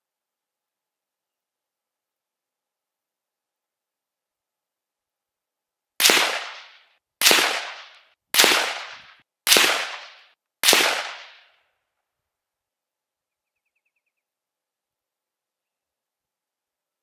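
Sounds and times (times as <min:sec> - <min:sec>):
rifle shots echoing: 0:06.0 - 0:11.5.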